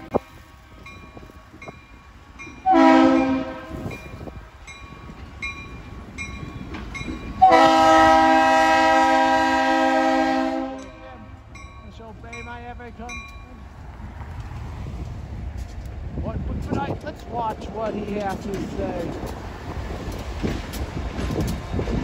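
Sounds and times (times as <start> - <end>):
locomotive air horn blasts: 2.6 - 3.9, 7.4 - 11.4.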